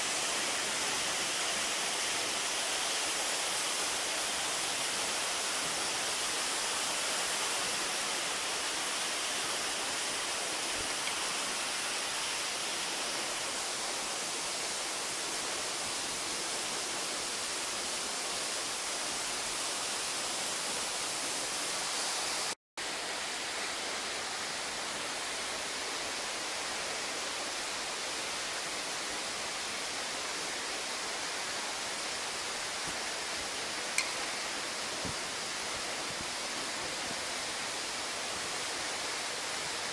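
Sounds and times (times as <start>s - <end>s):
water rushing over rocks: 26.9s - 39.9s.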